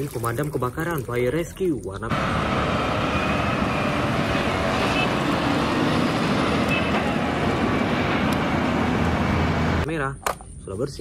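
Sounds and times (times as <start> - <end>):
road noise: 0.0 - 11.0
truck engine: 2.1 - 9.9.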